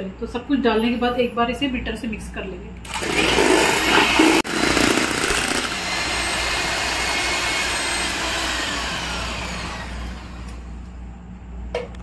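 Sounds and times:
electric hand beater running: 0:02.9 - 0:10.6.

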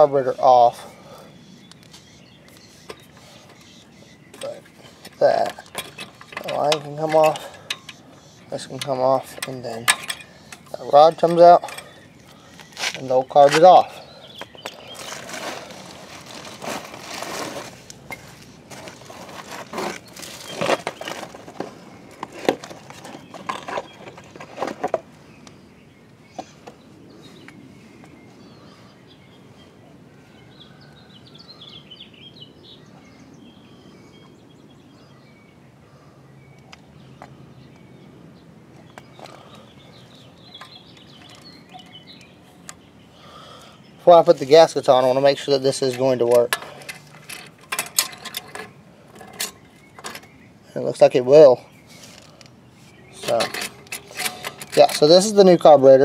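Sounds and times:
metal parts and tools clinking: 0:04.3 - 0:12.0, 0:45.7 - 0:50.3, 0:53.2 - 0:55.4.

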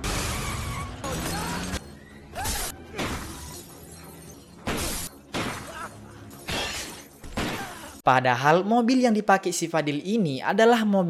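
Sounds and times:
glass shattering: 0:02.4 - 0:08.0.

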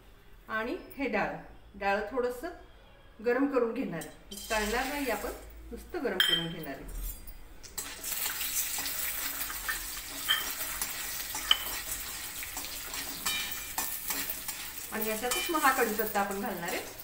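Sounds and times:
food sizzling in oil: 0:04.3 - 0:05.6, 0:07.7 - 0:17.0
spoon clinking against pan: 0:06.2 - 0:08.0, 0:09.6 - 0:17.0.

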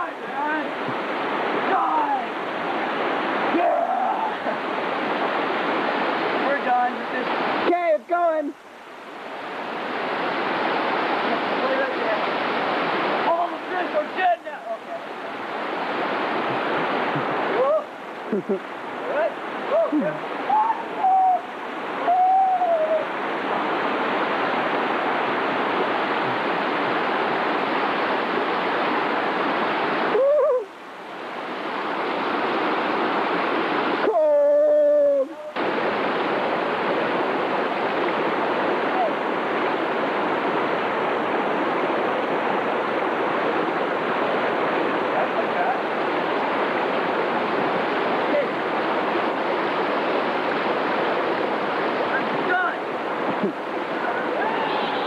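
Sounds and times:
rushing water: 0:00.0 - 0:55.0
wavering cry-like tone: 0:19.7 - 0:23.1, 0:30.1 - 0:30.7.

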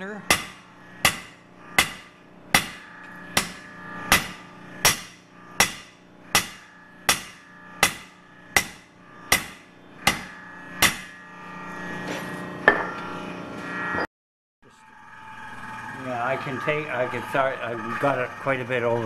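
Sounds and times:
hammer striking hot steel: 0:00.3 - 0:11.1.

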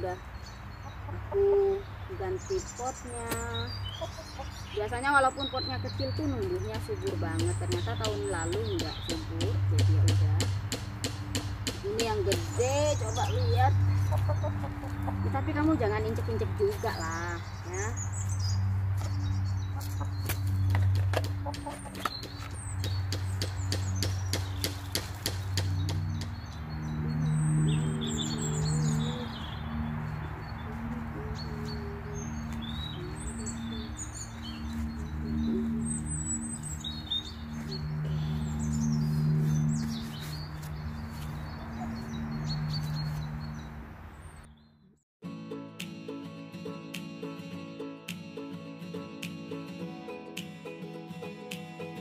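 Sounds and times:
songbirds chirping: 0:00.0 - 0:45.0
chickens clucking: 0:03.9 - 0:04.6, 0:14.0 - 0:15.4, 0:19.7 - 0:22.3
low hum: 0:25.6 - 0:42.7.

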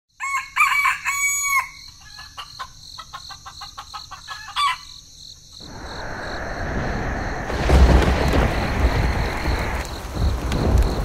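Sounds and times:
rooster crowing: 0:00.2 - 0:02.4
chicken clucking: 0:01.9 - 0:04.8
steady rushing noise: 0:05.6 - 0:11.0.

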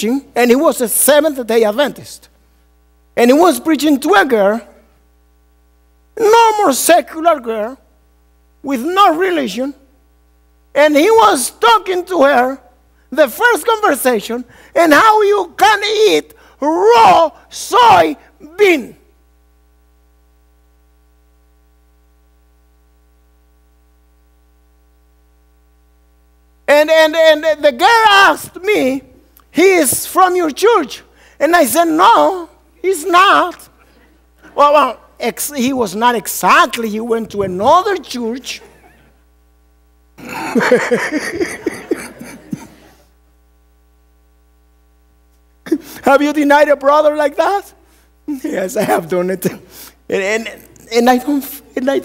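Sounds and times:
faint electrical hum: 0:00.0 - 0:52.0
steady hiss: 0:00.0 - 0:52.0
congregation laughing: 0:40.2 - 0:43.1.

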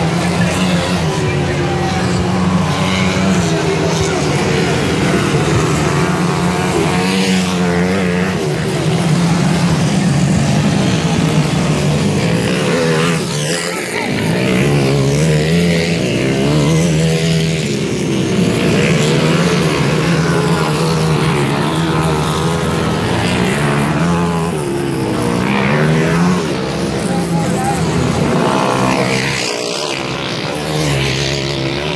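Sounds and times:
dirt bike engines revving: 0:00.0 - 0:31.9.

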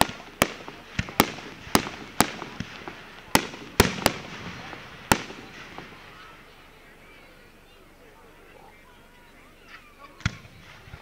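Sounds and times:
fireworks bangs: 0:00.0 - 0:06.8.

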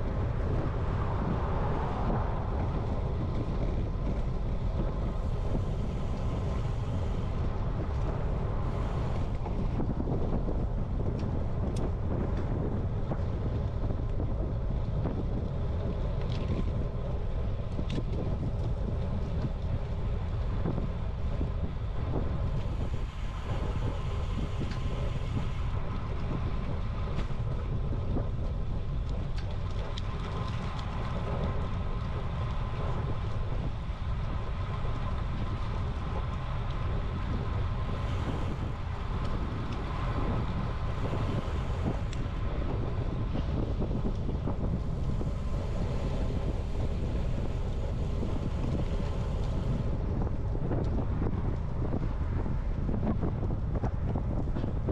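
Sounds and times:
wind rumble on microphone: 0:00.0 - 0:54.9
tyres hissing on pavement: 0:05.1 - 0:07.4, 0:08.3 - 0:09.4, 0:22.4 - 0:25.9, 0:37.7 - 0:39.2, 0:39.8 - 0:42.6, 0:44.9 - 0:49.9.

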